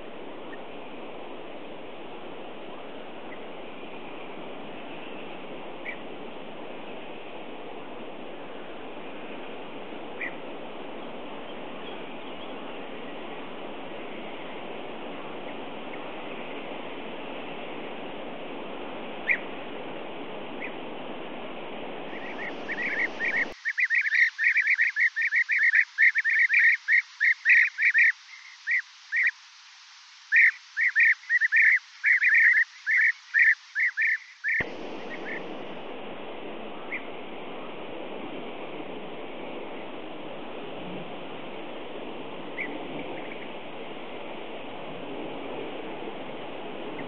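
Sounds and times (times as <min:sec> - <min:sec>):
steady hiss: 0:00.0 - 0:47.0
bee-eaters calling: 0:22.1 - 0:29.4, 0:30.2 - 0:35.8.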